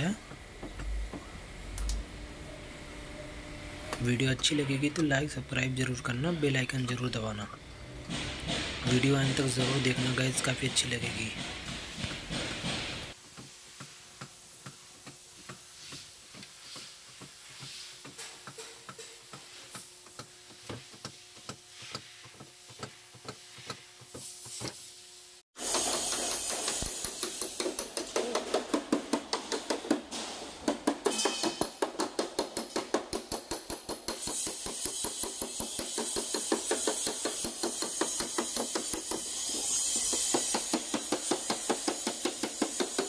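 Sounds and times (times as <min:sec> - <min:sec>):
hammer tapping sheet metal: 0:25.6 - 0:43.0.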